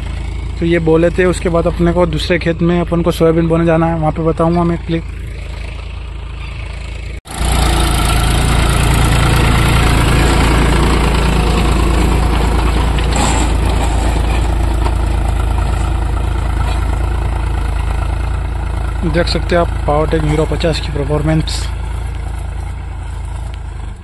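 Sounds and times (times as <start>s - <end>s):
tractor engine running: 0.0s - 24.0s.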